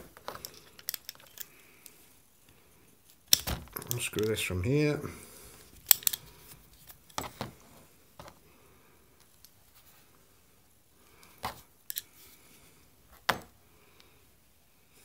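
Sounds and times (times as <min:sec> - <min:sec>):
metal parts clicking and knocking: 0:00.2 - 0:01.6, 0:03.3 - 0:04.4, 0:05.8 - 0:07.4, 0:11.9 - 0:12.1.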